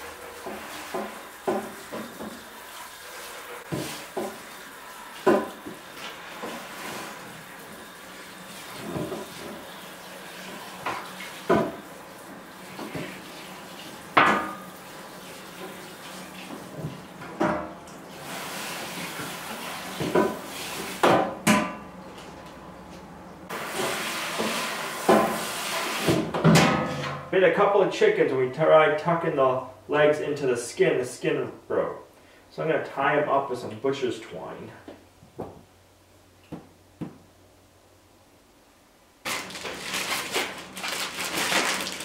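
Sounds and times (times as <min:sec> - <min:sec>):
water running: 0:00.0 - 0:21.0.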